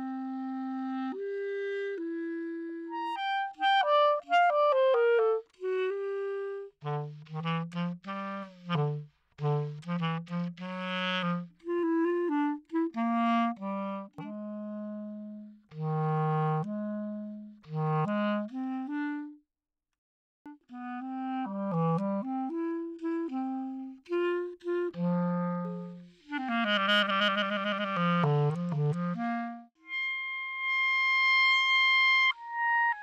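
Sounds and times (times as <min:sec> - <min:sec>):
melody instrument short notes: 0:29.8 - 0:33.0.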